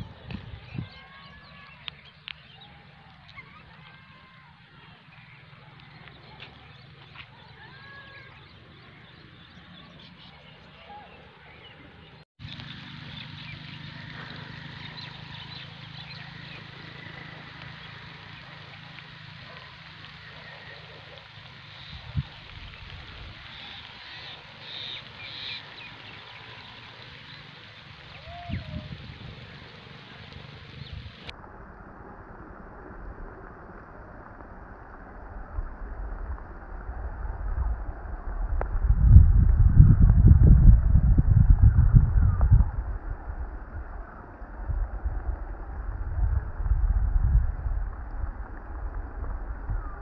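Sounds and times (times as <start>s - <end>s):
wind blowing across microphone: 0.0s - 10.1s, 21.4s - 50.0s
steady low rumble: 12.4s - 50.0s.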